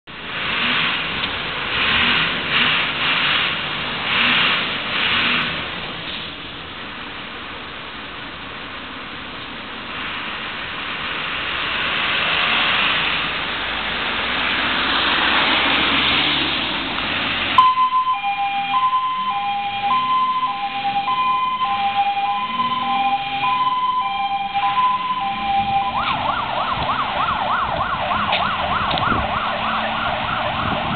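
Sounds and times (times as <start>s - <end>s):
street noise hiss: 0.1s - 17.6s
fire engine siren: 17.6s - 30.9s.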